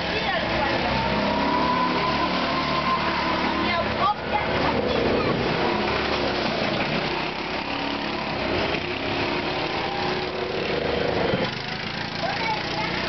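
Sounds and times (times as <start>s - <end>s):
go-kart engines droning: 0.0s - 13.0s.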